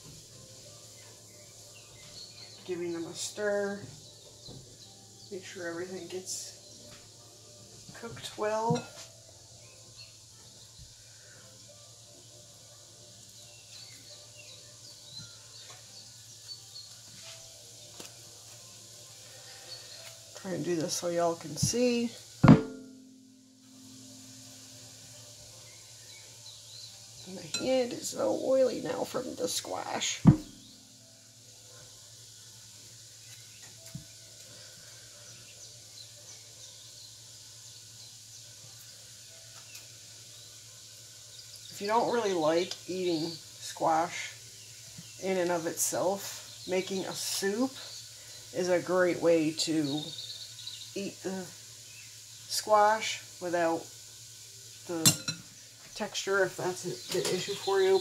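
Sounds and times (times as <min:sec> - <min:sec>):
faint hiss: 0:00.0 - 0:58.0
soft thump: 0:22.4 - 0:22.8.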